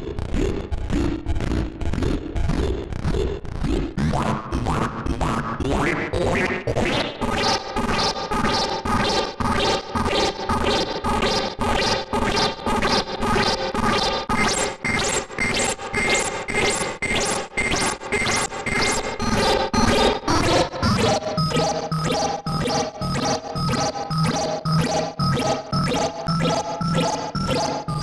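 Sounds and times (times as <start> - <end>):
rapid synth pulses: 18.2 - 28.0
buzzy chord-like synth tone: 20.5 - 28.0.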